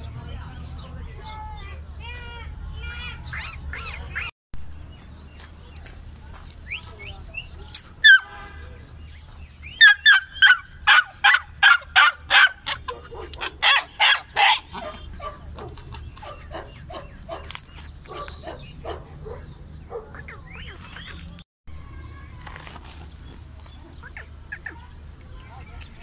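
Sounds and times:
dog barking: 0:09.8 - 0:17.5, 0:18.1 - 0:20.2.

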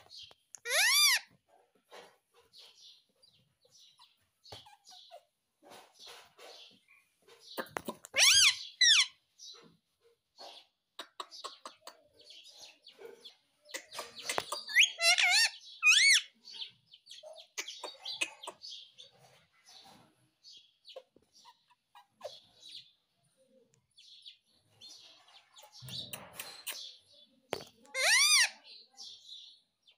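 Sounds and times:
parakeet chattering and chirping: 0:00.0 - 0:01.4, 0:03.7 - 0:09.7, 0:10.4 - 0:23.0, 0:24.0 - 0:29.5
parakeet whistled calls: 0:14.7 - 0:16.3.

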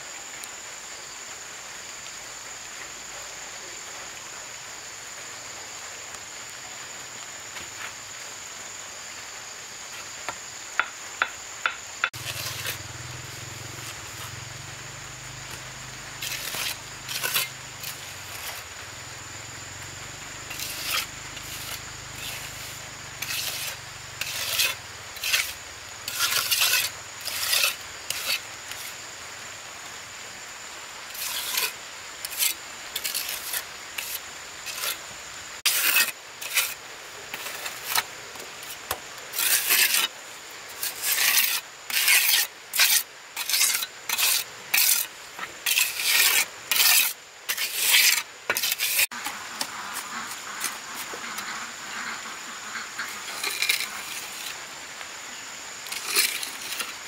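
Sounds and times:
trowel scraping wet cement: 0:12.0 - 0:14.4, 0:15.2 - 0:18.7, 0:20.4 - 0:29.0, 0:31.1 - 0:51.6, 0:53.0 - 0:54.7, 0:55.8 - 0:57.0.

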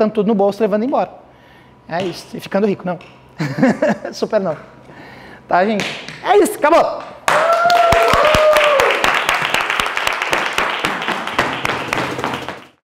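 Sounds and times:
small group clapping: 0:07.0 - 0:12.8
person whooping: 0:07.3 - 0:09.2.

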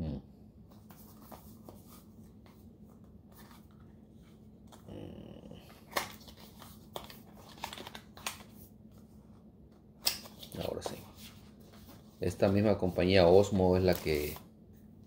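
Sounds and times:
steady low hum: 0:00.0 - 0:15.0
cardboard packaging rustling: 0:05.7 - 0:09.2.

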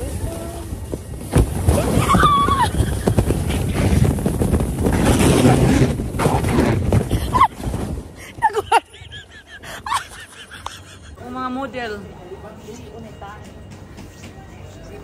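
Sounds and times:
wind buffeting microphone: 0:00.0 - 0:08.4.

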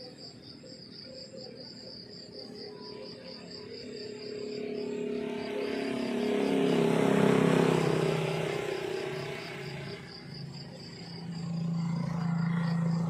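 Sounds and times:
crickets chirping: 0:00.0 - 0:13.0
motorcycle engine: 0:03.7 - 0:13.0
vehicle passing close: 0:03.9 - 0:13.0.

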